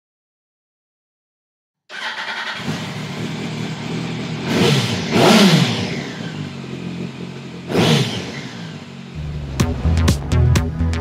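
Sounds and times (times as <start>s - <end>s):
motorcycle engines running: 2.5s - 10.3s.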